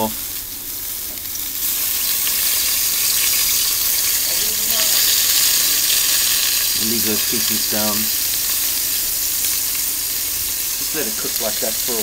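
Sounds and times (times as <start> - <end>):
chicken sizzling on grill: 0.0 - 12.0.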